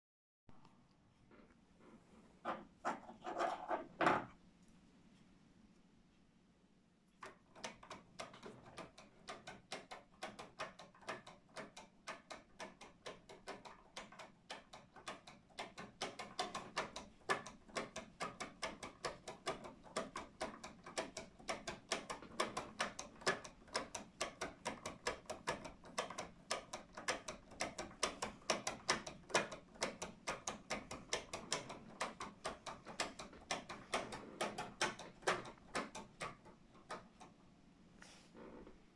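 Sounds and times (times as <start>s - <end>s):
clock escapement ticking: 7.2s - 37.3s.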